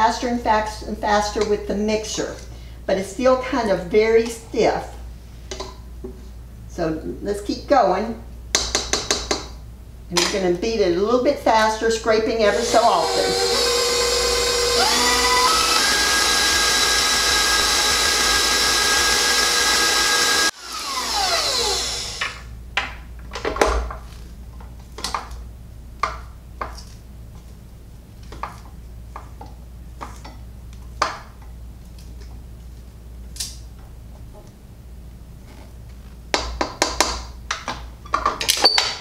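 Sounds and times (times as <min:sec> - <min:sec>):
stand mixer whining: 0:12.5 - 0:22.4.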